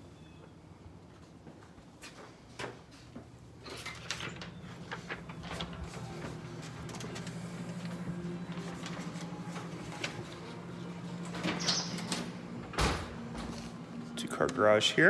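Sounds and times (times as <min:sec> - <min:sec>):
steady low hum: 0:04.2 - 0:15.0.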